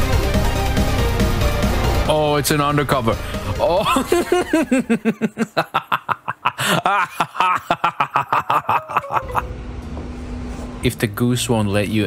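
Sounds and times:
person laughing hard: 3.6 - 9.5
low steady hum: 8.7 - 12.0.

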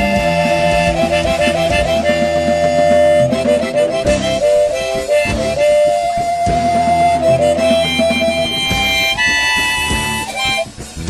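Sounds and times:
harmonica melody: 0.0 - 11.0
ska punk band backing: 0.0 - 11.0.

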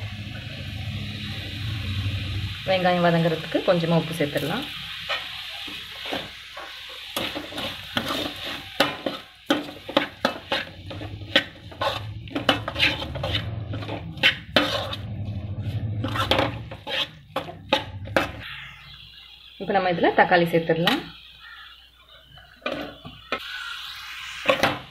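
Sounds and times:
light sizzle: 0.0 - 24.9
metal spoon scraping a pan: 4.3 - 18.7.

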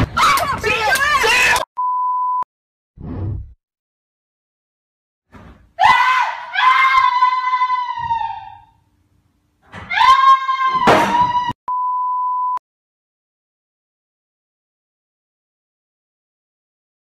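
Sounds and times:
steady beep: 1.8 - 2.4, 11.7 - 12.6
woman screaming: 5.8 - 8.8, 9.8 - 11.6
chair slammed thud: 10.7 - 11.5.

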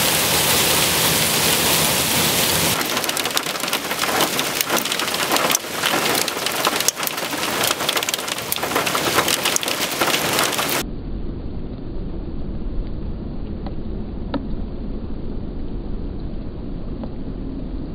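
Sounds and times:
hailstones pelting ground: 0.1 - 10.8.

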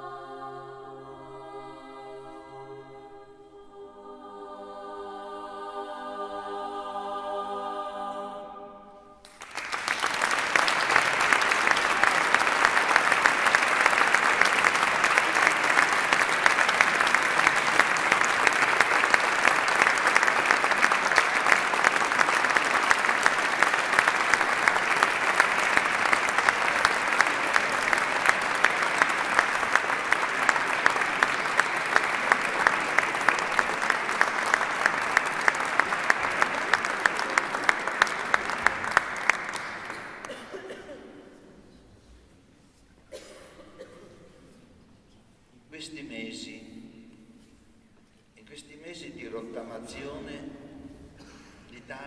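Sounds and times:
women's choir singing chord: 0.0 - 9.2
audience applause: 9.2 - 40.8.

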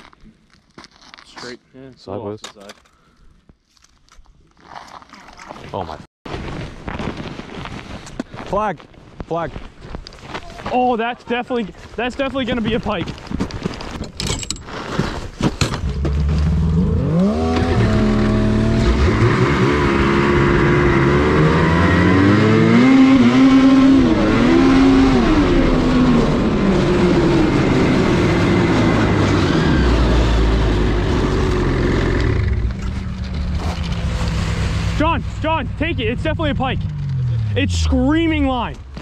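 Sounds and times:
snowmobile engine revving: 16.1 - 38.7.

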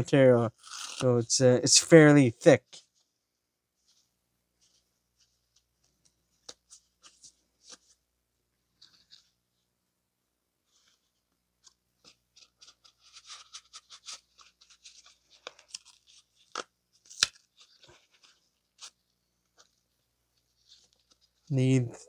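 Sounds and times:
paper filter element crinkling: 10.7 - 22.0.

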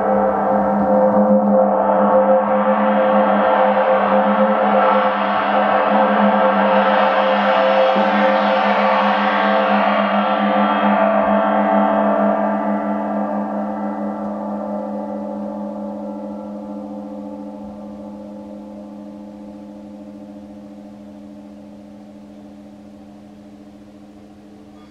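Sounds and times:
gong ringing: 24.4 - 24.9.

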